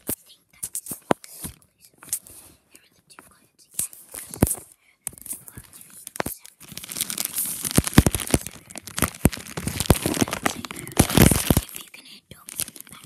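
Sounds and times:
plastic packaging crumpled and torn: 0:04.1 - 0:13.0.

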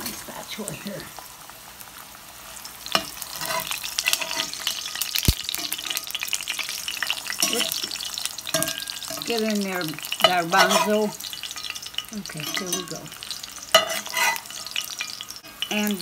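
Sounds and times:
tortilla sizzling in skillet: 0:00.0 - 0:16.0.

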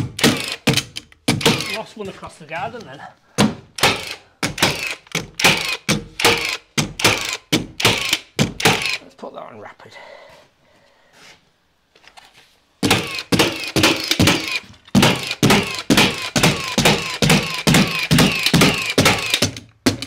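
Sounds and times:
nail gun firing: 0:00.0 - 0:01.8, 0:03.4 - 0:09.0, 0:12.8 - 0:20.0.

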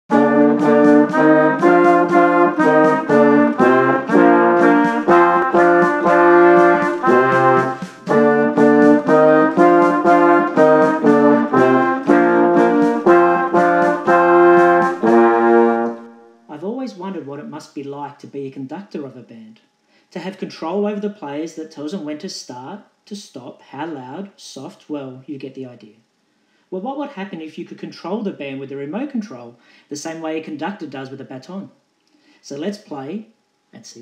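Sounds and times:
brass band playing short chords: 0:00.0 - 0:16.5.

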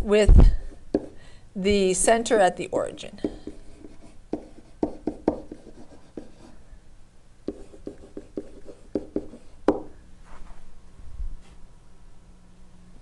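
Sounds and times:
stylus tapping and scratching: 0:03.2 - 0:06.4, 0:07.5 - 0:09.9.

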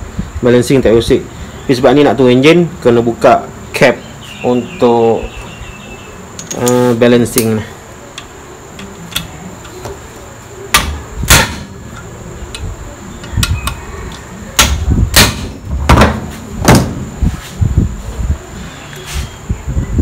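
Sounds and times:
metal tools knocking and clinking: 0:06.4 - 0:06.8.

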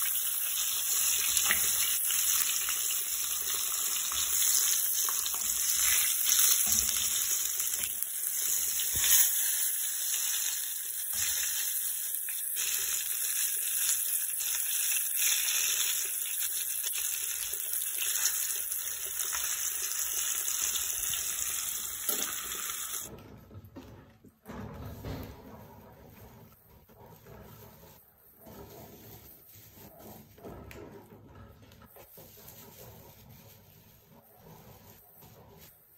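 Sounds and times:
hot oil sizzling: 0:00.0 - 0:23.1.

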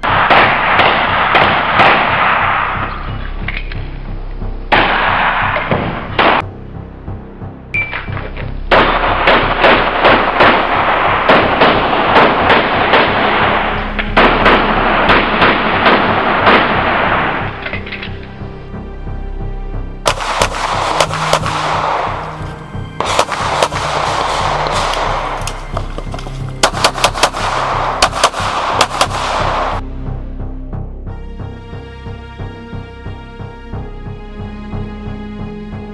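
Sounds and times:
pistol shots: 0:00.0 - 0:02.9, 0:08.7 - 0:17.4, 0:20.1 - 0:29.8
loud background music: 0:00.0 - 0:35.9.

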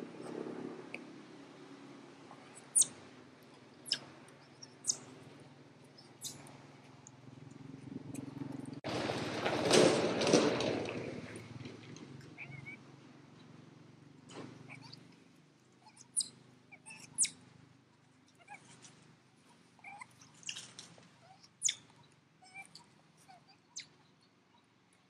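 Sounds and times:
animal chirps and squeaks: 0:02.4 - 0:03.0, 0:03.8 - 0:05.1, 0:05.9 - 0:06.6, 0:12.3 - 0:12.8, 0:14.6 - 0:15.0, 0:15.8 - 0:17.4, 0:18.4 - 0:18.9, 0:19.8 - 0:24.0.

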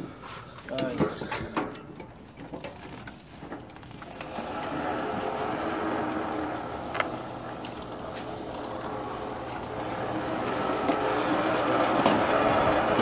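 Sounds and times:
small tyres rolling on concrete: 0:00.0 - 0:13.0
electric drive motors running: 0:03.7 - 0:13.0.

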